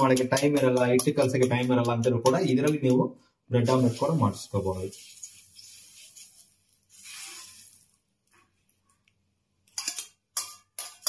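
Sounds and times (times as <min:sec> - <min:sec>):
whisk clinking against steel bowl: 0:00.0 - 0:03.0, 0:09.8 - 0:11.0.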